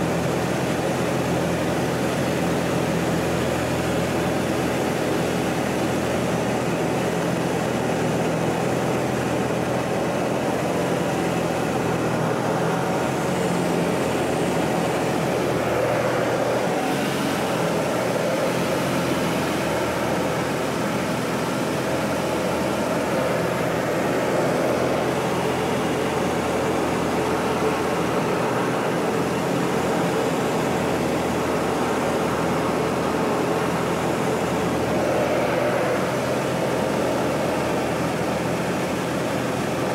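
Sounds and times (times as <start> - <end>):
propeller plane engine droning: 0.0 - 39.9.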